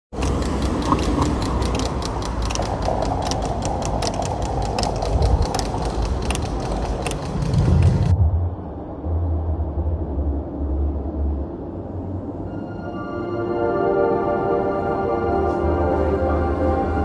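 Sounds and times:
clicking and crackling textures: 0.1 - 8.2
experimental ambient music: 0.1 - 17.0
low drone: 0.2 - 17.0.

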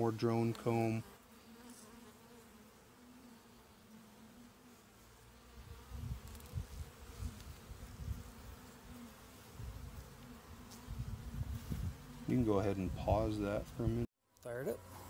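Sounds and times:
bees humming: 0.0 - 14.0.

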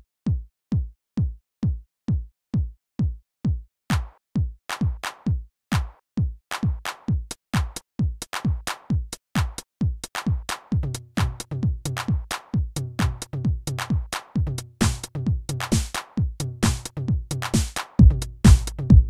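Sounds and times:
drum machine kick drum: 0.0 - 19.0
snare and hi-hat hits: 3.9 - 19.0.

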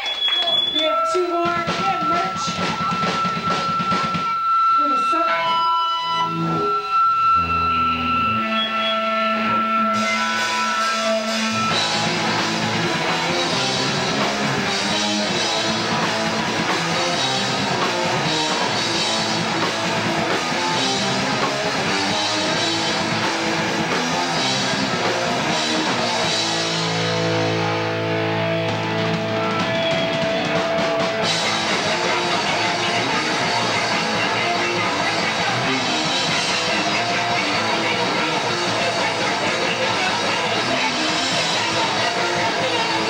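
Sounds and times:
live rock band playing: 0.0 - 43.0.

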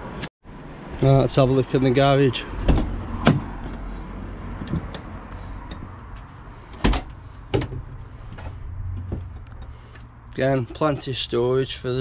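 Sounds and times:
low outdoor hum: 2.5 - 12.0.

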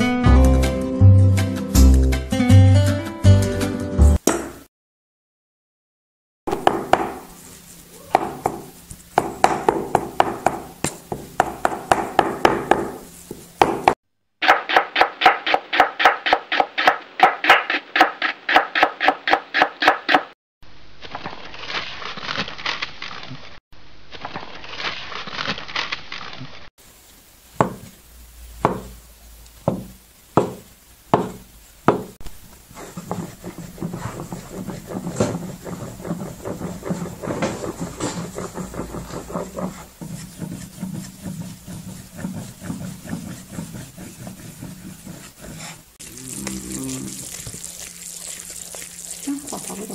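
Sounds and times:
cleaver chopping on wooden block: 6.5 - 7.3, 8.1 - 13.0, 13.6 - 20.3, 29.7 - 30.6, 31.2 - 32.2
rolling pin knocking on board: 8.1 - 20.2, 27.6 - 27.8, 28.6 - 28.9, 29.6 - 32.2
steady rustling noise: 30.1 - 46.0.

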